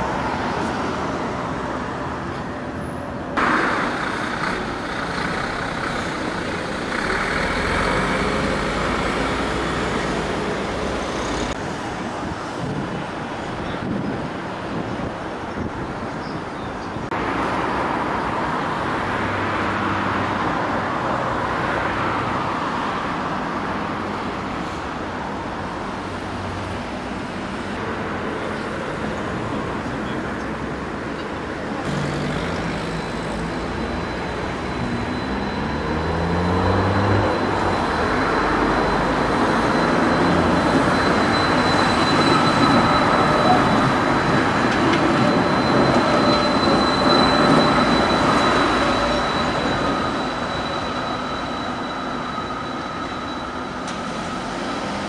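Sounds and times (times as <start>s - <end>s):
road traffic noise: 0.0s - 55.0s
tram drive whining: 0.0s - 55.0s
high-pitched wheel squeal: 31.9s - 55.0s.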